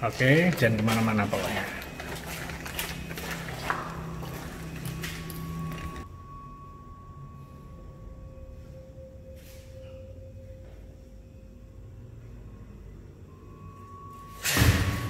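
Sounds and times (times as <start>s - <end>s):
low ringing tone: 0.0s - 15.0s
high ringing tone: 0.1s - 15.0s.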